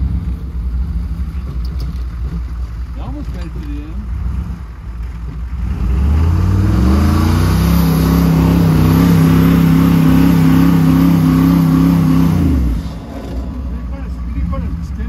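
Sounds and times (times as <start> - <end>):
truck engine revving: 0.0 - 15.0.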